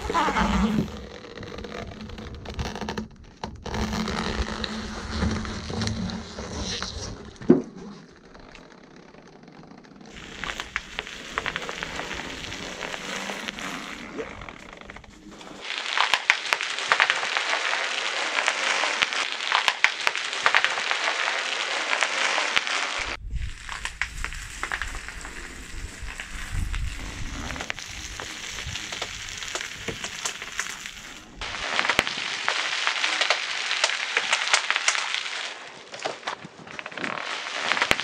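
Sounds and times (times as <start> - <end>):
bubble wrap popping: 0.0 - 8.9, 10.1 - 38.0
low rumble: 23.0 - 29.5.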